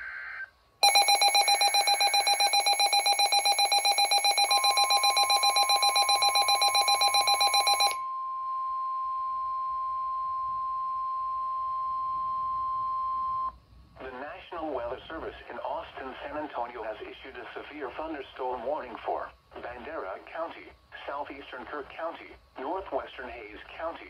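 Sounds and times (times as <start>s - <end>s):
rapidly pulsing electronic alarm: 0.8s - 8.0s
steady warning alarm tone: 0.8s - 8.0s.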